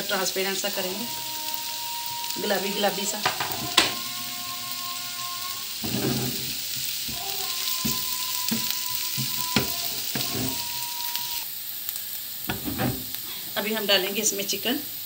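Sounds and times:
onion and garlic sizzling: 0.0 - 15.0
utensil knocking against pan: 3.2 - 4.0, 7.8 - 10.6.

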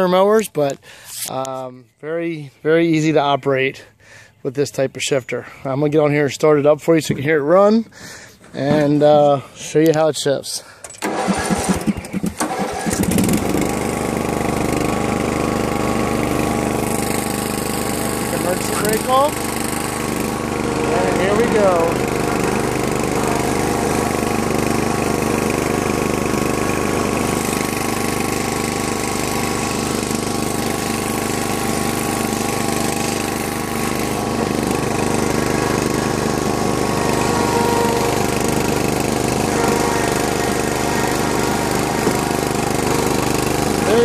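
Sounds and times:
man talking: 0.0 - 7.9, 8.5 - 10.7, 18.3 - 19.4, 20.8 - 22.0
mower engine running: 10.9 - 44.0.

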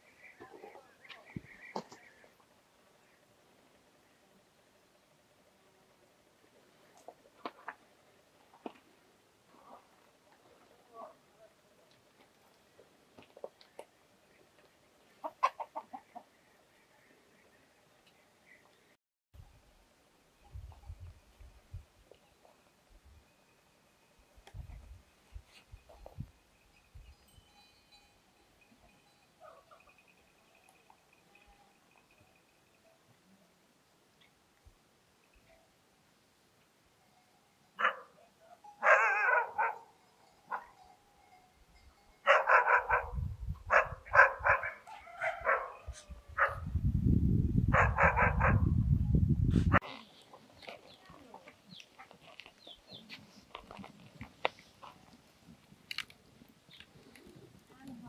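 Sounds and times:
dog barking: 37.8 - 38.2, 38.8 - 39.9, 40.5 - 40.8, 42.2 - 46.7, 47.7 - 48.7.

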